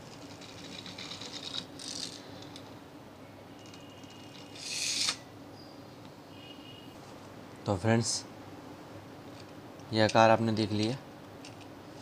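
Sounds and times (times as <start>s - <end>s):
toy car spring clicking: 0.6s - 2.6s, 3.6s - 5.2s
toy car rushing whirr: 4.0s - 5.2s.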